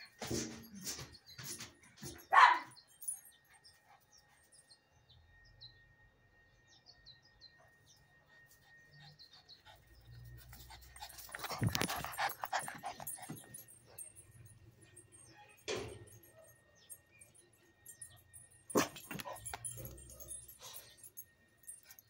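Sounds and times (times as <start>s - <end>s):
small dog panting: 8.3s - 13.5s.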